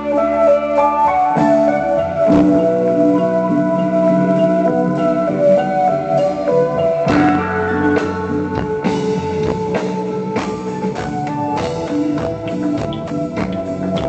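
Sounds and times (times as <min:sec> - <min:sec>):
electric guitar notes: 0:00.0 - 0:14.0
drum and cymbal hits: 0:06.2 - 0:14.0.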